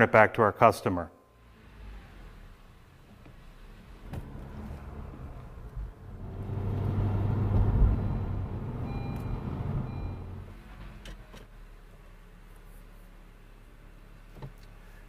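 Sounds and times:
car driving past: 1.4 - 10.9.

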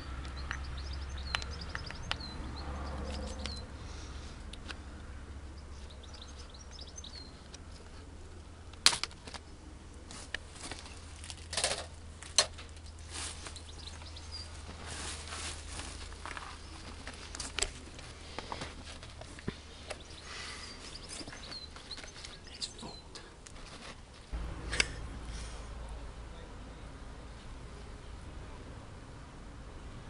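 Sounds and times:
bird chirping: 0.0 - 3.9, 5.0 - 7.6, 12.8 - 14.7, 19.7 - 23.3
low steady hum: 0.0 - 30.0
rustling: 8.8 - 22.6, 23.4 - 24.4.

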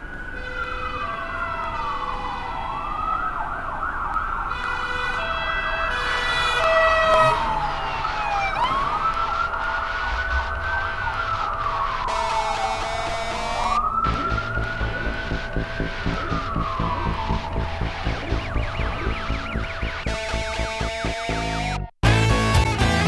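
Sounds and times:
wailing sirens: 0.0 - 23.0
steady held tones: 7.1 - 21.9.

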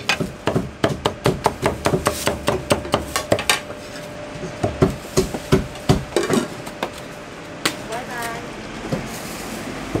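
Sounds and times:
cleaver chopping on wooden block: 0.0 - 3.7.

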